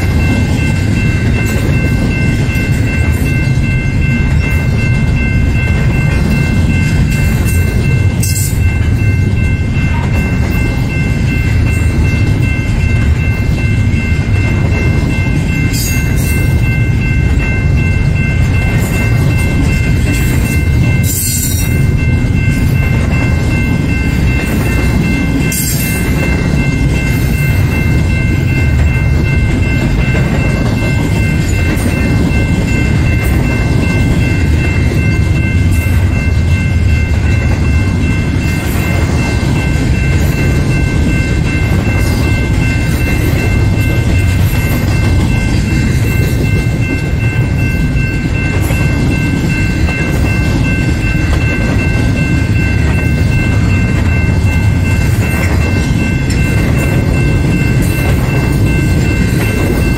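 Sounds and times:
freight train wheels rumbling: 0:00.0 - 0:59.9.

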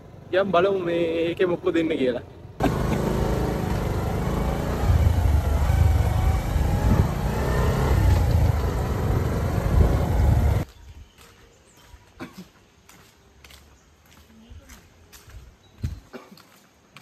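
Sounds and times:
vehicle engine rumbling: 0:02.2 - 0:10.6.

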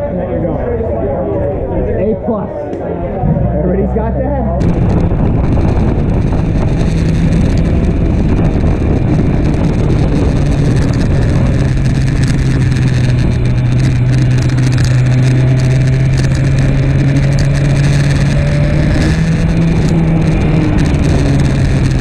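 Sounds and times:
wind rushing over microphone: 0:03.2 - 0:22.0
motorcycle engine running at speed: 0:04.6 - 0:22.0.

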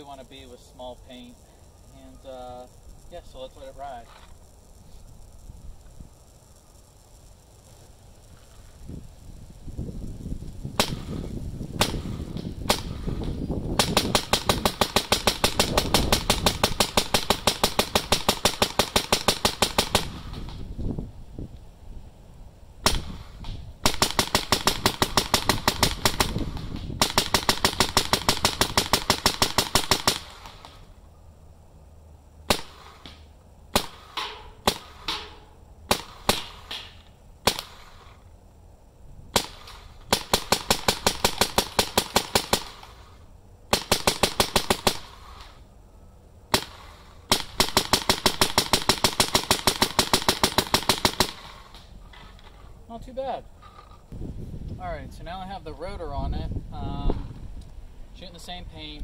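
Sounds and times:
paintball marker firing: 0:10.8 - 0:20.7, 0:22.8 - 0:30.9, 0:32.5 - 0:38.2, 0:39.4 - 0:43.0, 0:43.7 - 0:45.6, 0:46.5 - 0:51.9.

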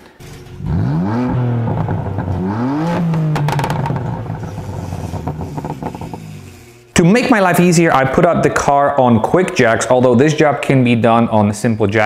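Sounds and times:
car engine revving: 0:00.2 - 0:07.8.

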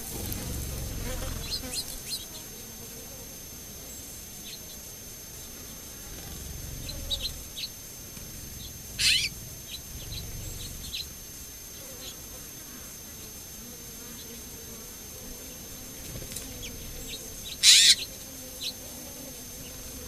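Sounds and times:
small birds chirping: 0:00.2 - 0:02.3, 0:06.2 - 0:07.8, 0:08.4 - 0:12.2, 0:16.3 - 0:18.8.

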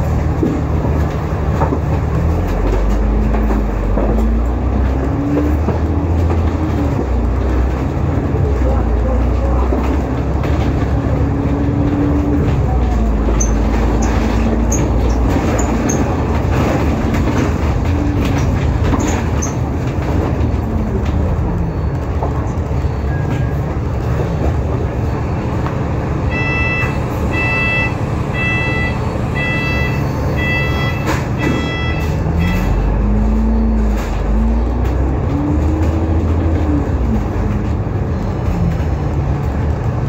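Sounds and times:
bus engine drone: 0:00.0 - 0:40.0
repeating beep: 0:26.3 - 0:33.0.

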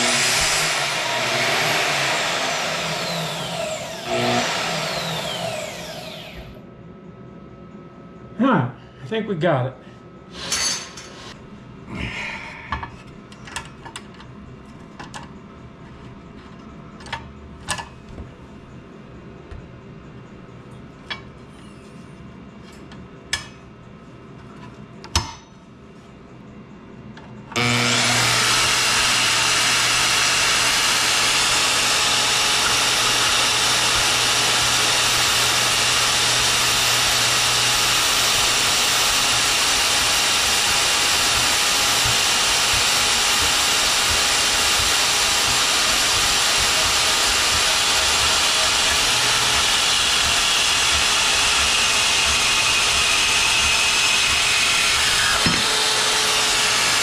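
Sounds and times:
bandsaw cutting steel: 0:00.0 - 0:06.6, 0:27.6 - 0:57.0.

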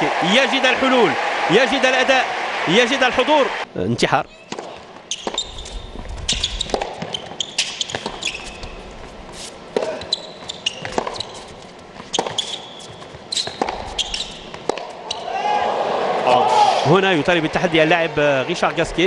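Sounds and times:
shoes squeaking on court: 0:04.3 - 0:15.3
ball bouncing on court: 0:04.5 - 0:08.8, 0:09.7 - 0:15.2
racket striking tennis ball: 0:04.5 - 0:15.2.

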